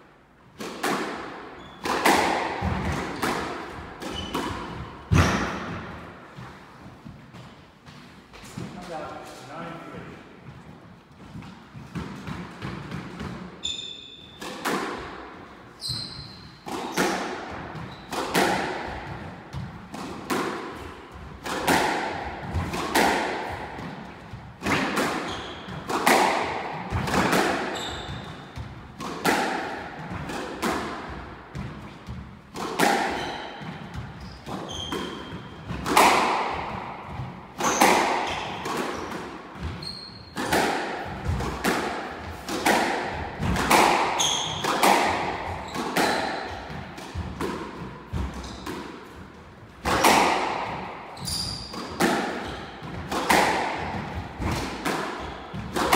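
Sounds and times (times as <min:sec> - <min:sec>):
squash ball hitting rackets and walls: 0:00.0 - 0:09.6, 0:10.4 - 0:55.9
shoes squeaking on wooden floor: 0:15.8 - 0:16.6, 0:25.2 - 0:25.9, 0:27.7 - 0:28.5, 0:33.1 - 0:35.6, 0:37.6 - 0:40.4, 0:44.2 - 0:44.6, 0:51.2 - 0:51.8.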